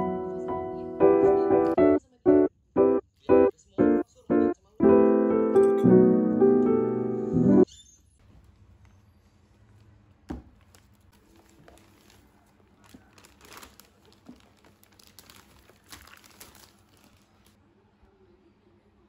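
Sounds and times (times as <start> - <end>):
plastic and paper bags crinkling: 8.2 - 17.6
bag knocking on table: 10.3 - 10.6.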